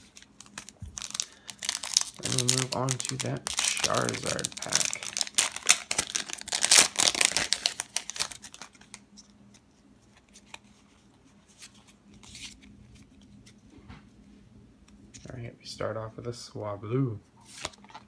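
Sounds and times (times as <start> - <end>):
wrapper crinkling and tearing: 0.0 - 9.0.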